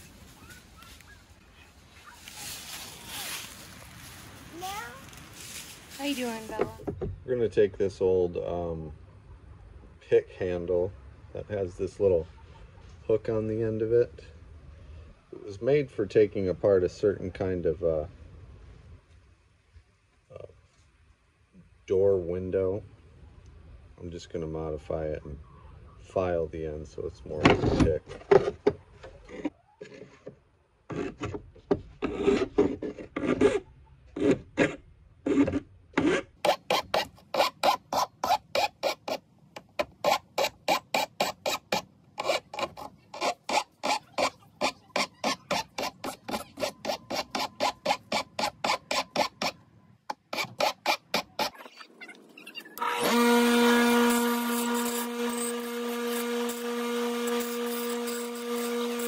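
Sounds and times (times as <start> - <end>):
hand file rasping on metal: 34.2 - 51.6, 52.8 - 59.0
bench grinder humming: 52.8 - 59.0.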